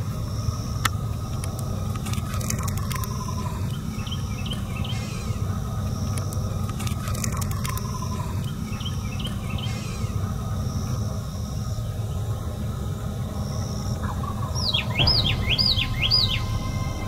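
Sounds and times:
low rumble: 0.0s - 17.0s
songbirds calling: 0.0s - 17.0s
bird slurred whistles: 14.5s - 17.0s.

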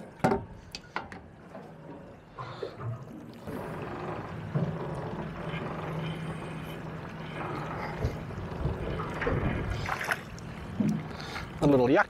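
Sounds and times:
steady low hum: 0.0s - 11.8s
wind: 0.0s - 12.0s
water slapping against boat hull: 7.8s - 11.7s.

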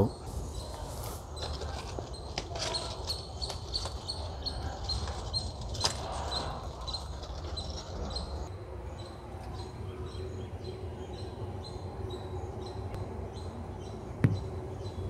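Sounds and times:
small bird calling: 0.0s - 8.5s.

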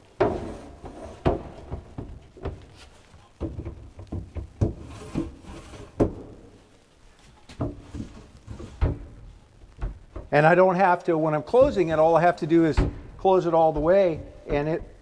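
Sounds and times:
wooden drawers scraping: 0.0s - 6.5s, 7.4s - 10.4s.

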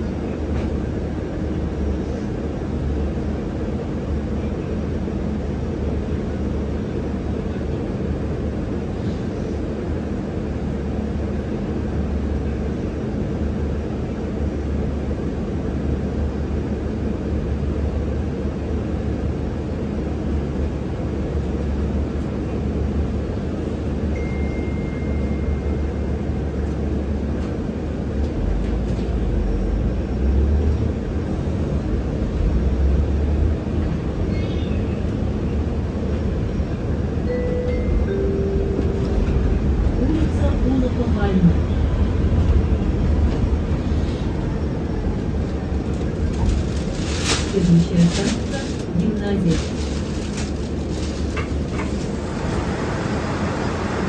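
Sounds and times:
bus rumbling as it pulls away: 0.0s - 54.0s
electric bus cabin hum: 0.0s - 54.0s.

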